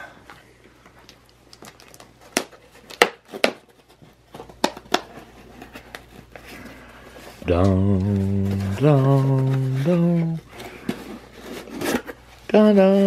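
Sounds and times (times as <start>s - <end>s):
cardboard box taps and snaps: 2.3s - 3.6s.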